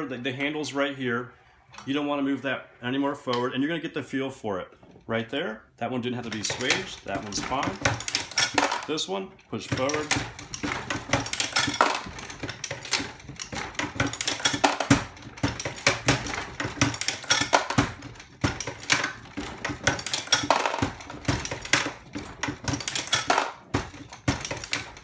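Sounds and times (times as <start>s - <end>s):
metallic clicks and clinks: 6.2s - 25.0s.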